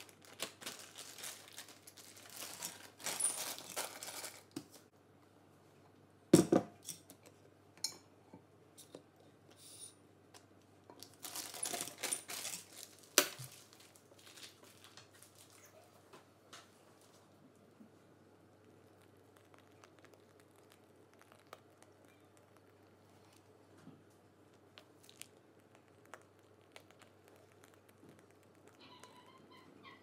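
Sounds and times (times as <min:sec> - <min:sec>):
plastic bag rustling: 0:00.0 - 0:04.8, 0:11.0 - 0:15.8.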